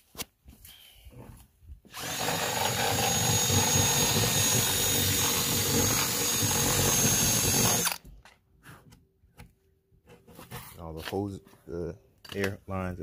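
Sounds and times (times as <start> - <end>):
cordless drill boring through wood: 1.9 - 8.1.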